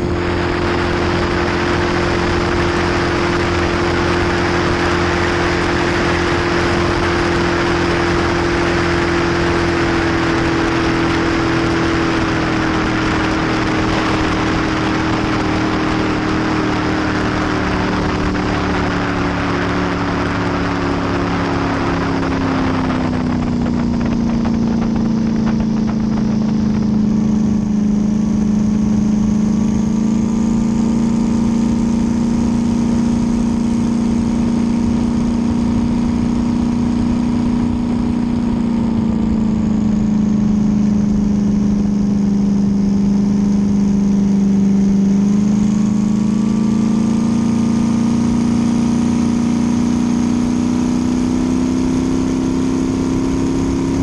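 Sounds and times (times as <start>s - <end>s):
boat engine running hard: 0.0s - 54.0s
rush of wind and water: 0.0s - 54.0s.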